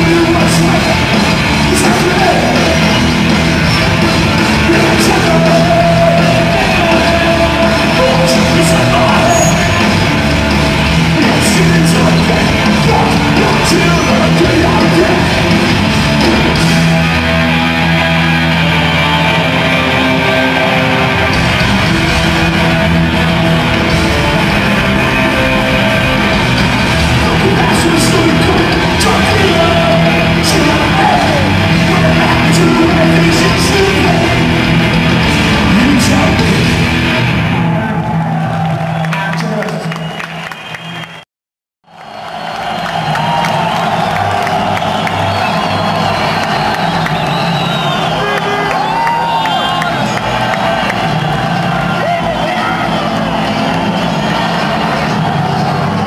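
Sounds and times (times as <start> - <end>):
vocals: 0.0 - 3.6, 4.3 - 10.2, 11.0 - 16.9, 26.9 - 36.9
live punk band playing: 0.0 - 38.9, 42.8 - 56.0.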